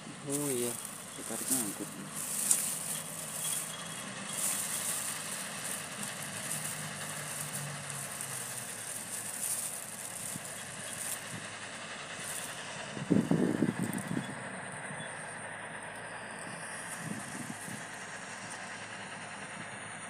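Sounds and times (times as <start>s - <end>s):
faint low engine hum: 0.0s - 20.0s
plastic bag rustling: 0.3s - 11.4s.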